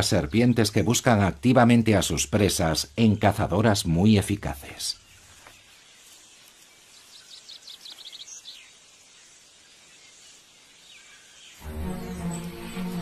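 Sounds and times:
steady hiss: 5.0 - 13.0.

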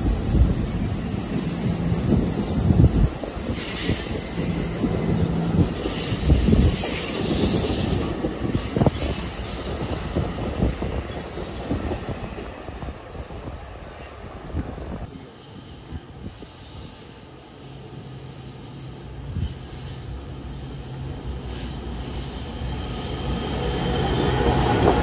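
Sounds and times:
high wheel squeal: 0.1 - 10.4, 21.6 - 25.0
train wheels clattering on rails: 21.4 - 25.0.

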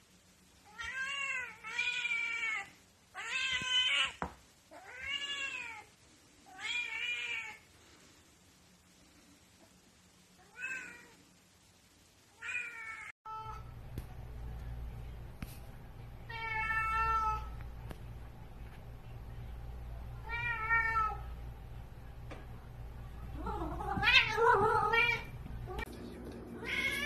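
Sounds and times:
low steady hum: 13.3 - 27.0.

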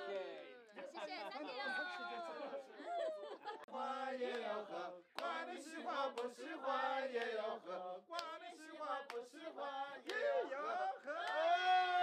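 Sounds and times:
voices singing folk chant: 3.4 - 12.0.

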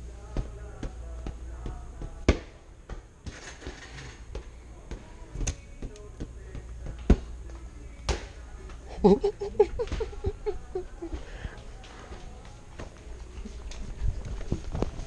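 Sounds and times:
inflatable ball bouncing on concrete: 0.2 - 3.4, 4.3 - 7.4.

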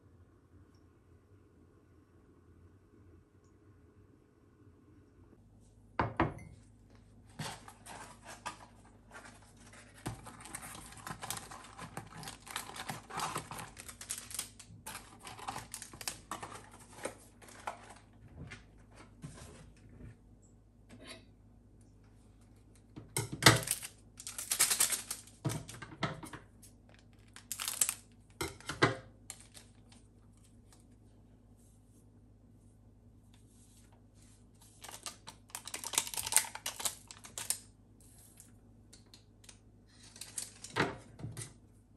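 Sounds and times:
foil sachets crinkling: 7.3 - 18.2, 23.5 - 25.8, 26.8 - 30.9, 34.6 - 38.6, 39.4 - 40.8
sachet being cut open: 10.4 - 16.6, 27.2 - 28.0, 34.8 - 37.6.

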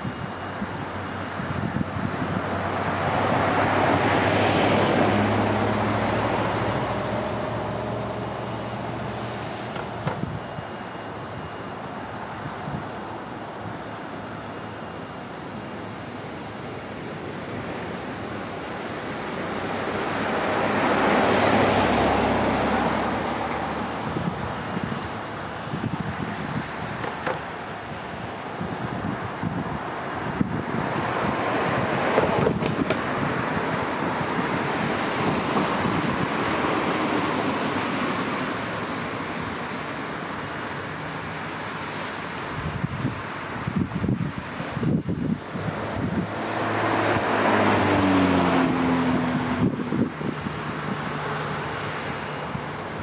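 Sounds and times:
wind on microphone: 0.0 - 13.9, 16.2 - 53.0
car passing by: 1.1 - 11.6, 15.8 - 53.0
car driving past: 45.8 - 52.6.

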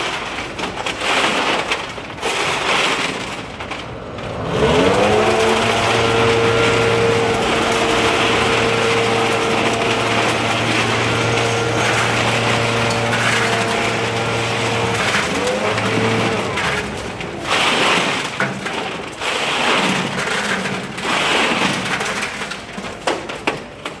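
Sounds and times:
knocks and scrapes: 0.0 - 24.0
leaf blower engine running: 4.0 - 18.2.

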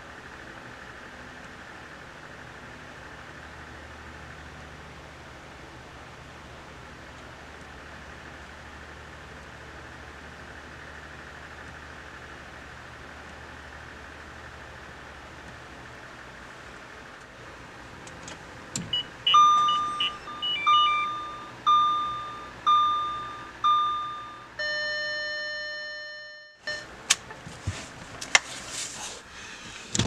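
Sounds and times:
short warning beeps: 18.9 - 26.9
ringing gong chime: 19.3 - 26.8.

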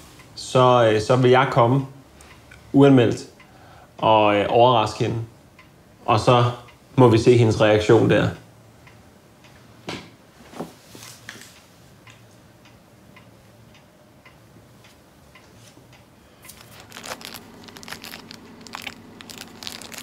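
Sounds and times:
crinkling and rustling handling: 16.4 - 20.0.

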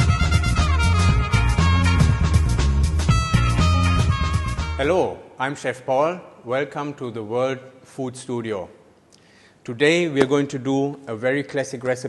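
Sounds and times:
music with steady beat and bass: 0.0 - 4.9.

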